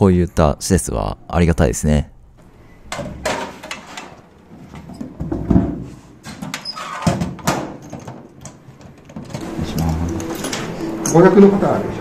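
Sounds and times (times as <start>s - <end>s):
metal locker clanks: 2.9s - 10.8s.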